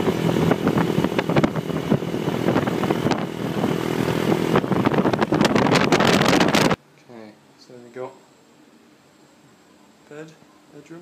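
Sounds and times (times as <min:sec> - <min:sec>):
wind buffeting on microphone: 0:00.0 - 0:06.8.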